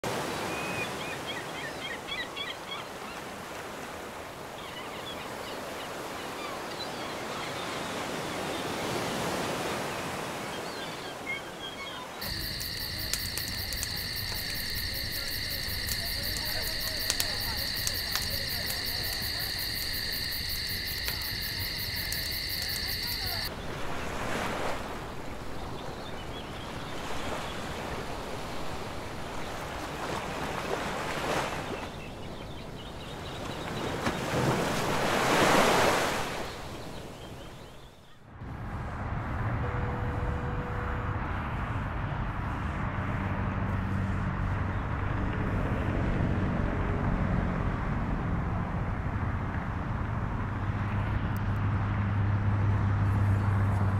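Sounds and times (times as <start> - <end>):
sea waves washing in: 12.1 - 32.4, 33.4 - 37.6.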